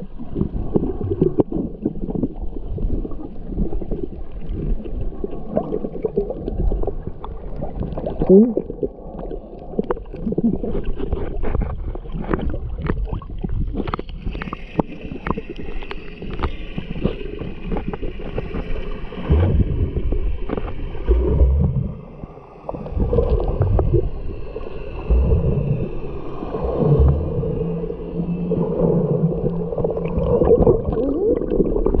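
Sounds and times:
muffled water gurgling underwater: 0.0s - 32.0s
low rumbling surges: 19.1s - 32.0s.

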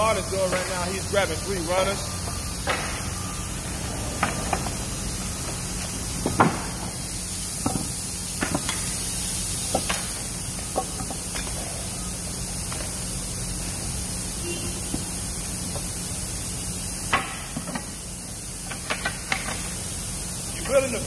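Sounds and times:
steady factory hum: 0.0s - 21.0s
wooden pallet pieces knocking: 6.2s - 6.8s.

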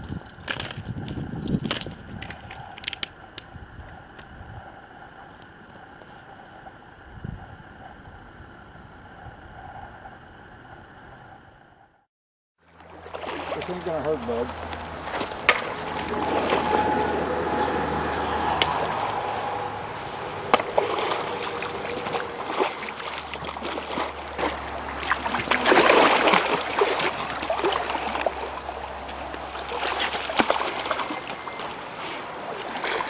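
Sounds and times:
water splashing and sloshing: 12.6s - 33.0s.

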